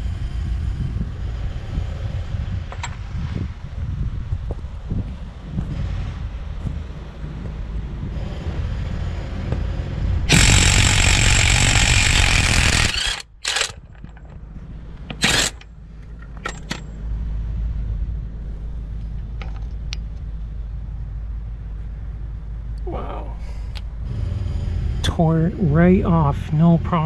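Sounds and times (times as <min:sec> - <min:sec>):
impact wrench hammering: 0:10.3 - 0:13.8, 0:15.1 - 0:15.6.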